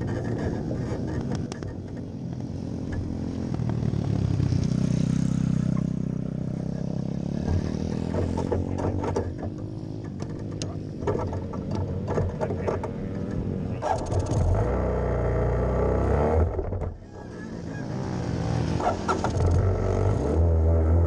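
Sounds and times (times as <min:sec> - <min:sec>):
kart engine revving: 0:00.0 - 0:21.0
sharp knocks and rattles: 0:07.4 - 0:14.6.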